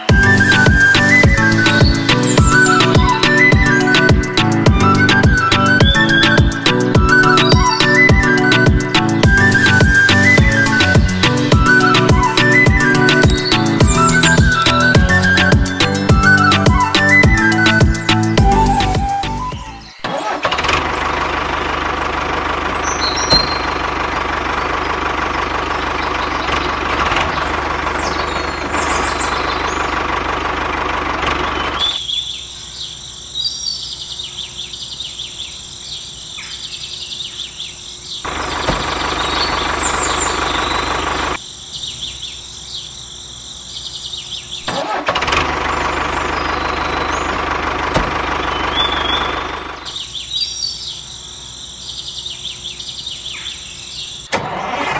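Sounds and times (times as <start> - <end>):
birds chirping: 0.0 - 54.8
toy tractor engine running: 20.1 - 32.0, 38.3 - 41.4, 44.7 - 49.9.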